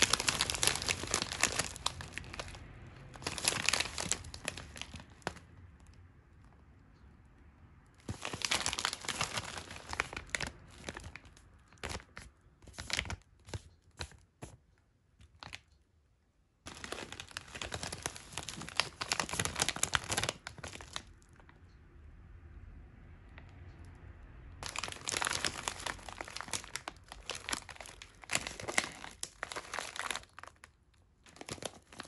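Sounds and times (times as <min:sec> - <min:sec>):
plastic snack bag crinkling: 0:00.0 - 0:06.6, 0:08.0 - 0:14.2, 0:16.7 - 0:21.6, 0:24.6 - 0:32.0.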